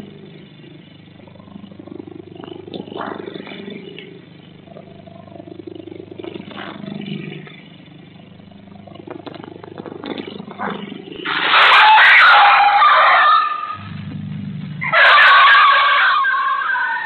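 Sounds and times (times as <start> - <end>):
low motor-like hum: 0.0 - 11.6, 13.4 - 14.9.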